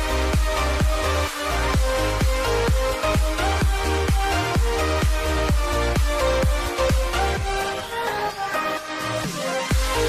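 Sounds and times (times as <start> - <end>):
steady kick drum: 0.0 - 7.6, 9.7 - 10.0
electronic dance music: 0.0 - 10.0.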